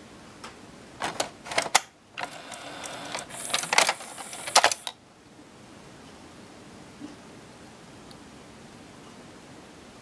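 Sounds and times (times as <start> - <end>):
cd changer clicking and whirring: 1.0 - 5.0.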